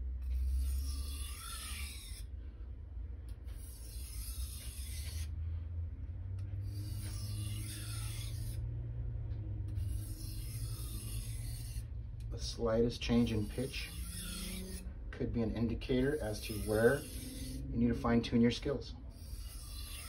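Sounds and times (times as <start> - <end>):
knife grinding on whetstone: 0.2 - 2.3, 3.5 - 5.3, 6.6 - 8.6, 9.7 - 11.9, 13.1 - 14.8, 15.9 - 17.7, 19.1 - 20.0.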